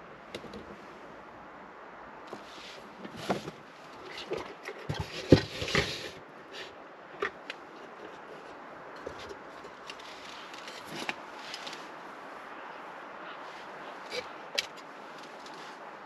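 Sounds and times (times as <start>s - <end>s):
steady background hiss: 0.0s - 16.0s
objects being handled: 2.3s - 12.0s.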